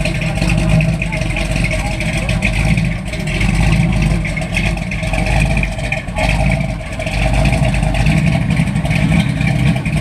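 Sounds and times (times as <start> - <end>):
car engine pulling away: 0.0 - 10.0.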